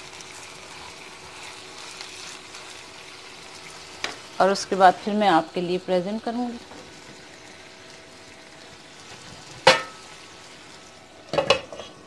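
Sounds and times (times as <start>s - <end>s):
chicken sizzling in a frying pan: 0.0s - 12.0s
glass lid clinking on pan: 9.7s - 10.0s.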